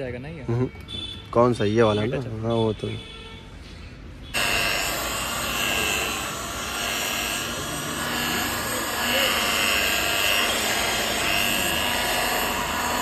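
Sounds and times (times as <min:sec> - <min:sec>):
electric rotary polisher whining: 0:04.4 - 0:13.0.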